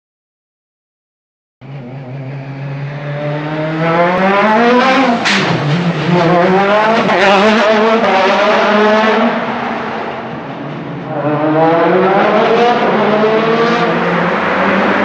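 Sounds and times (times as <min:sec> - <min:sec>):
rally car engine revving: 0:01.6 - 0:15.0
sharp crack at gear change: 0:05.2 - 0:05.8.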